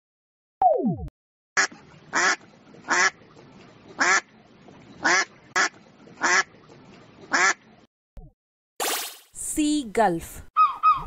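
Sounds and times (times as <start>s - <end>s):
duck quacking: 7.3s - 7.6s.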